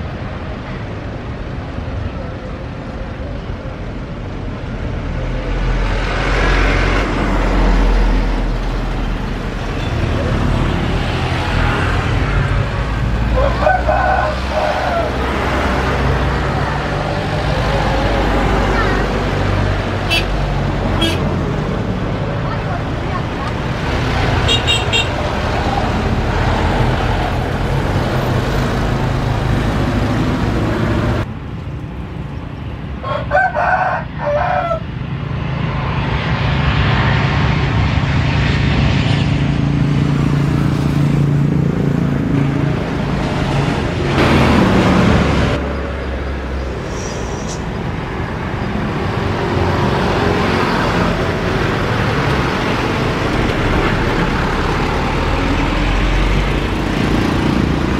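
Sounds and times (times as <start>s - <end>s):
jet engines of landing airliners: 0.0s - 57.9s
rooster crowing: 13.3s - 15.4s, 33.0s - 34.9s.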